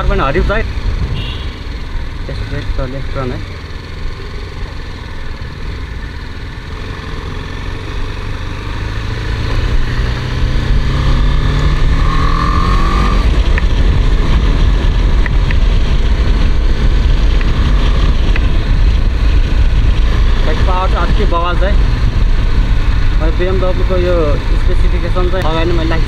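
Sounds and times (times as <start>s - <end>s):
motorcycle engine accelerating: 0.0s - 26.0s.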